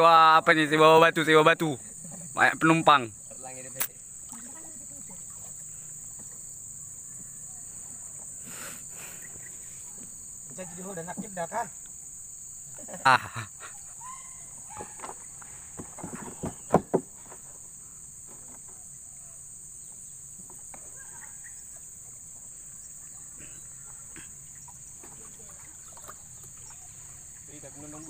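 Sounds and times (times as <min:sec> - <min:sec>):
high insect drone: 0:00.0 - 0:28.0
sharp knocks: 0:15.8 - 0:17.2.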